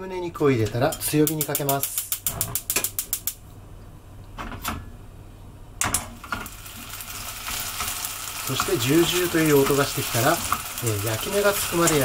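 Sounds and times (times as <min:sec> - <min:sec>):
stove igniter clicking: 0:01.0 - 0:03.4
faint sizzle of frying meat: 0:06.2 - 0:12.0.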